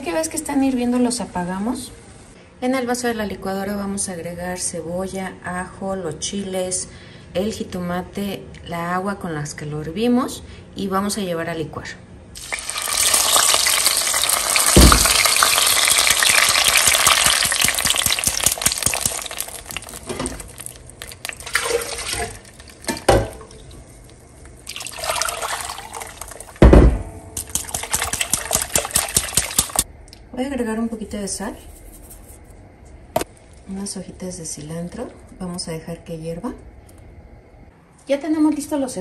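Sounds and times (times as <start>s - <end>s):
sauce pouring through strainer: 12.4s - 23.9s, 24.6s - 26.6s, 27.4s - 29.8s
sharp knocks: 26.6s - 27.6s
stirring and scraping through sieve: 31.6s - 32.4s.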